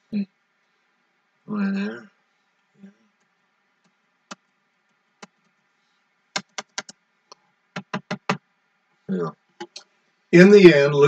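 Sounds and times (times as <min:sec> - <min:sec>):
keyboard keys tapping: 0:06.4 - 0:06.9, 0:07.8 - 0:08.4.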